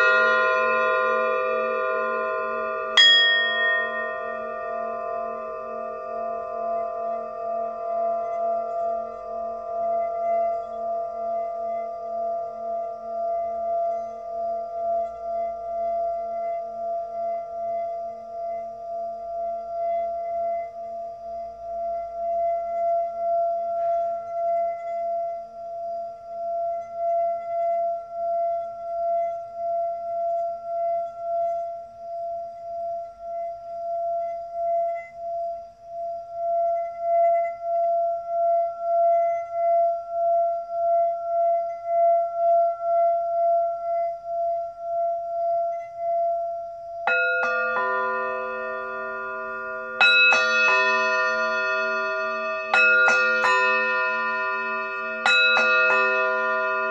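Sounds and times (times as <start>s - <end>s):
singing bowl ringing: 0.0s - 56.9s
singing bowl struck: 0.0s - 56.9s.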